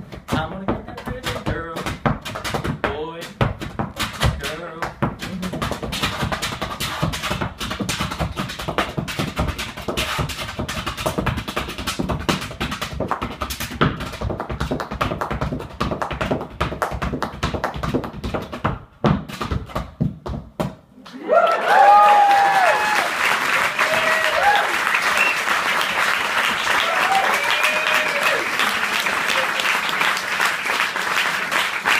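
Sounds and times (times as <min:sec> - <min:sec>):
shoes tapping on dance board: 0:00.0 - 0:20.9
audience applause and cheering: 0:21.0 - 0:31.9.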